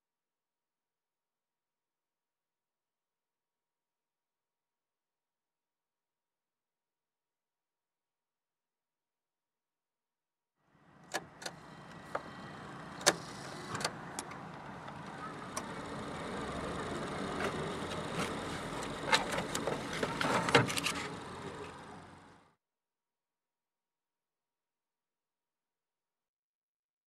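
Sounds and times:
car wash brushes and water rushing: 10.9 - 22.4.

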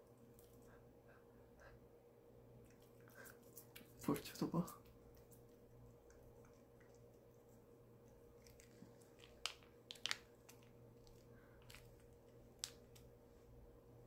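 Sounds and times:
cat licking and chewing: 2.6 - 13.1.

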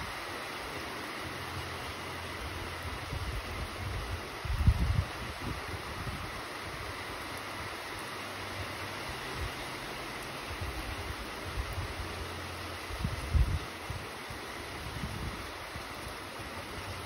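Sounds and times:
rain falling: 0.0 - 17.0
wind buffeting microphone: 2.9 - 6.8, 12.8 - 14.1, 14.7 - 15.9.

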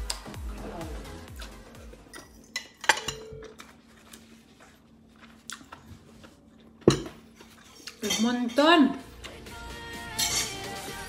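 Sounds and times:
metal utensil clinking on bowl: 2.1 - 3.4, 7.8 - 8.7, 10.2 - 10.7.

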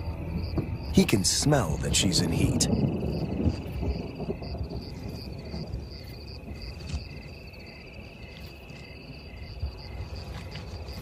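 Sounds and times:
low rumble: 0.0 - 6.6
crickets chirping: 0.0 - 11.0
high insect trill: 0.0 - 11.0.

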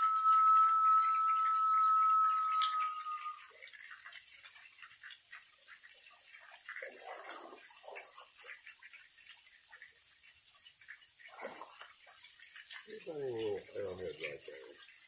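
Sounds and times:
high whistle note: 0.0 - 3.5.

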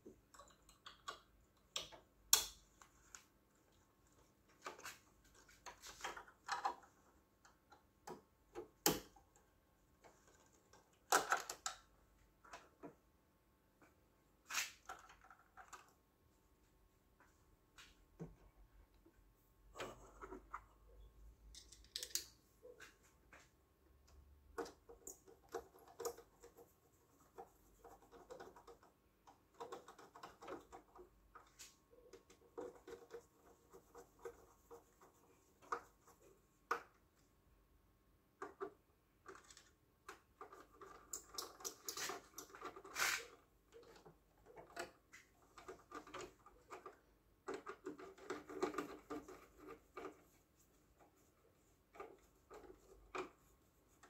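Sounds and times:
tools and parts clicking: 0.2 - 2.9, 21.4 - 22.4.

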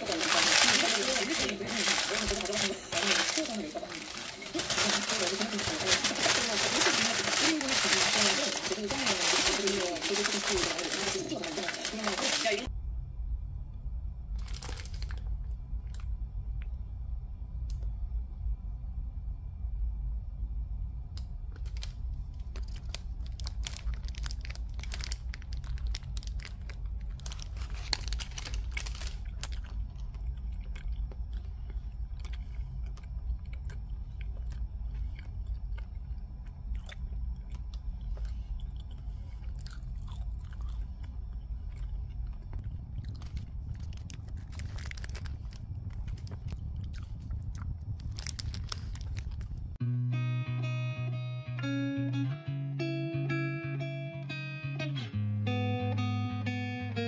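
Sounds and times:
steady low hum: 0.0 - 50.1
person chewing crunchy food: 22.4 - 49.8.

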